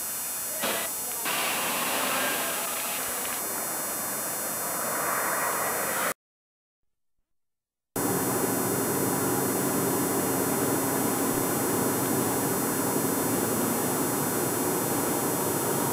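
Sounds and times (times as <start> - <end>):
faint buzz: 0.0 - 6.2.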